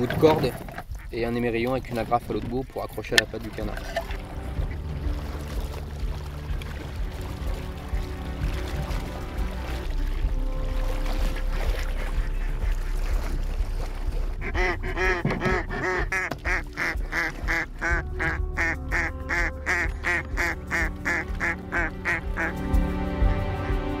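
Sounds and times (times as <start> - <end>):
background music: 0.0 - 24.0
duck quacking: 14.4 - 22.6.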